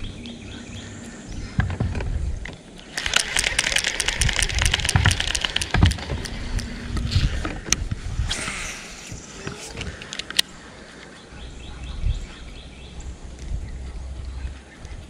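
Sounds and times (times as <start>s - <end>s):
fishing reel gear clicks: 2.8s - 7.4s.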